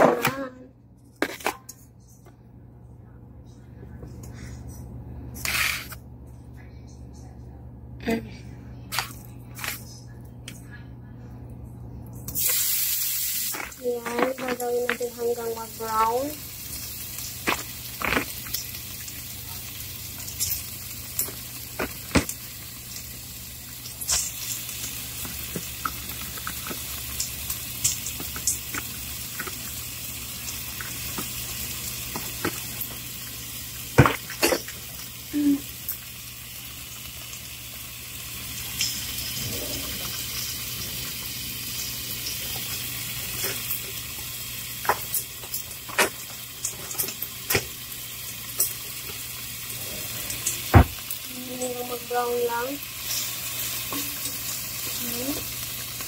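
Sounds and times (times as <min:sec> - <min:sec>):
shrimp sizzling in oil: 0:12.3 - 0:39.4, 0:40.0 - 0:56.0
oil popping and crackling: 0:12.3 - 0:56.0.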